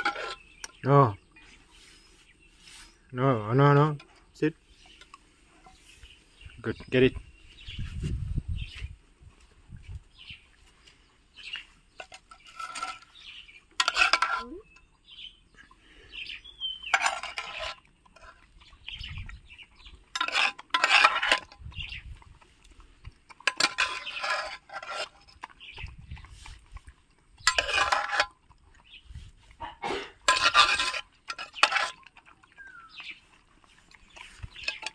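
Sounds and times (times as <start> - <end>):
metal spoon scraping a pot: 0.0 - 0.8, 11.9 - 14.8, 16.8 - 22.1, 23.2 - 29.2, 30.0 - 34.9.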